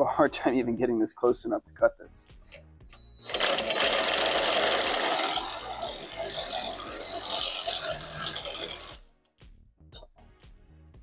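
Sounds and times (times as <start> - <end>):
reciprocating saw cutting copper pipe: 3.3 - 9.0.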